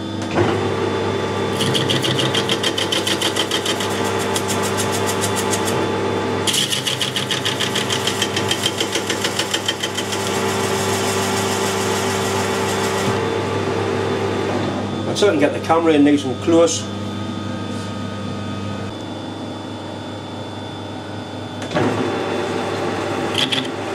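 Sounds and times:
metal lathe running: 0.8s - 14.3s, 22.4s - 23.9s
lathe tool cutting steel: 1.5s - 5.8s.

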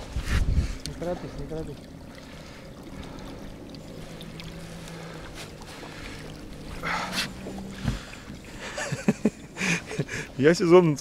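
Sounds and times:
boat motor hum: 0.0s - 11.0s
splash or rustle: 2.2s - 8.9s.

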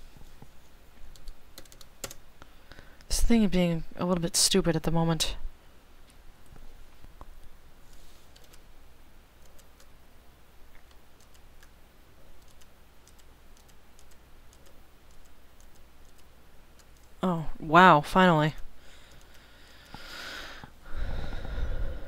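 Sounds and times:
low steady hum: 0.0s - 22.0s
keyboard and mouse clicks: 1.1s - 2.2s, 7.9s - 8.6s, 9.4s - 9.9s, 10.7s - 17.2s, 19.1s - 20.0s.

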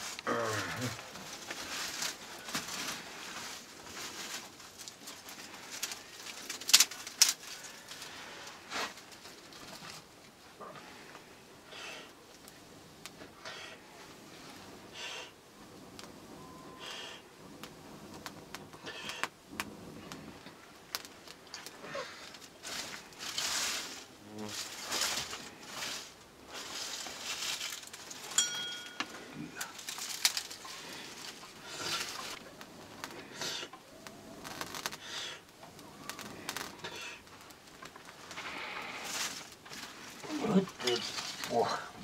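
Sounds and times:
twigs crackling: 0.0s - 10.3s, 16.8s - 42.0s
man blowing on fire: 12.8s - 24.6s, 30.7s - 39.5s.

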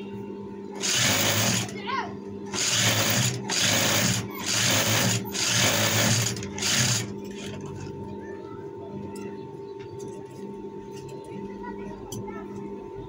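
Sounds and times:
steady hum: 0.0s - 13.0s
sewing machine stitching: 0.8s - 1.8s, 2.5s - 7.6s.

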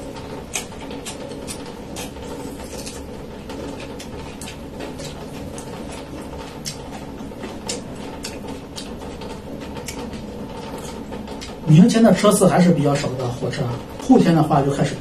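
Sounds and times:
steady background hum: 0.0s - 15.0s
small irregular clicks: 0.5s - 11.7s.

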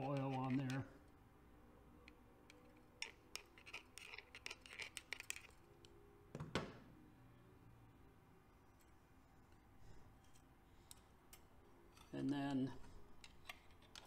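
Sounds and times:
light metal clicks and scrapes: 2.0s - 5.9s, 8.7s - 14.0s.

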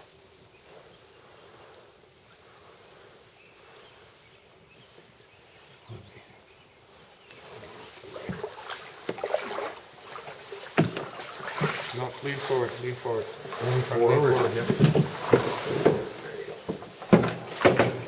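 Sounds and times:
faint water: 5.8s - 18.0s
paddle knocks and splashes: 8.0s - 18.0s.

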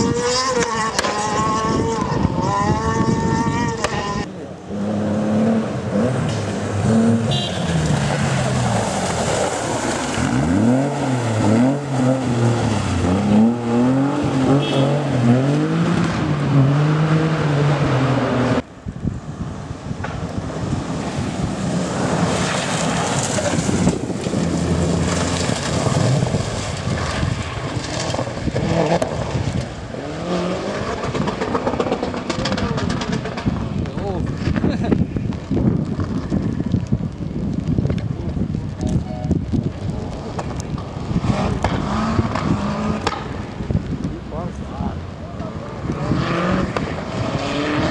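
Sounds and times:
rally car engine revving: 0.0s - 18.7s, 19.8s - 36.9s, 39.5s - 47.9s
tyres on gravel: 6.2s - 15.7s, 21.0s - 46.0s.

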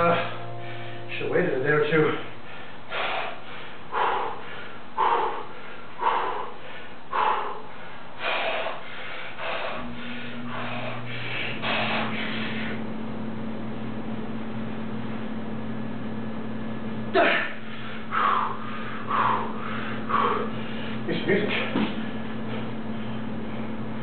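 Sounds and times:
man breathing hard: 0.0s - 1.2s, 1.9s - 12.8s, 17.1s - 24.0s.

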